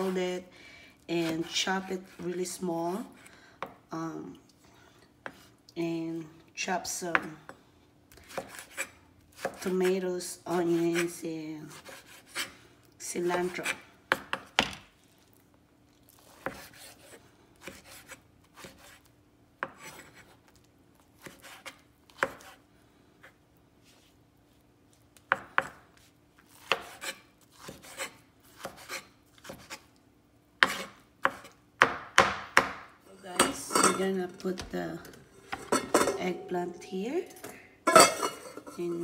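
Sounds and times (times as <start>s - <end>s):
knife chopping on wooden board: 8.2s - 9.7s, 26.5s - 29.8s, 30.6s - 32.9s.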